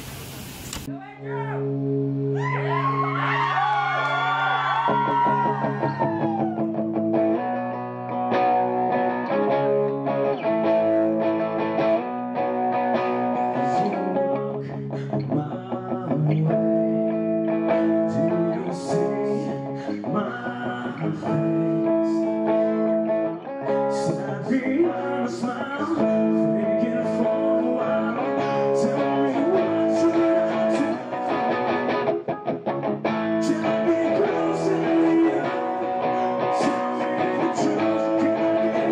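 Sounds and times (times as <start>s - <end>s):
electric guitar strummed and picked: 1.6s - 38.9s
man singing into a microphone: 13.4s - 31.5s, 33.3s - 38.9s.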